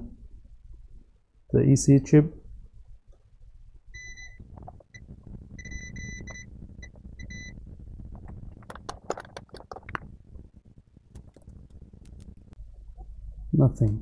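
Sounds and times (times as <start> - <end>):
multimeter beeping: 4.0 - 7.6.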